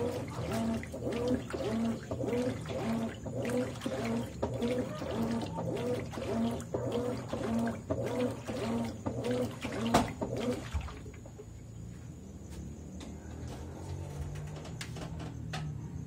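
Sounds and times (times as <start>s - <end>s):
washing machine agitating water: 0.0s - 11.6s.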